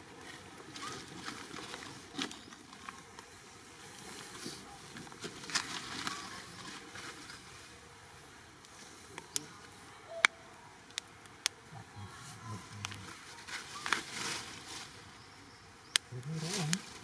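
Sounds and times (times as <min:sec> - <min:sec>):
dry leaves and twigs crackling: 0:00.0 - 0:17.0.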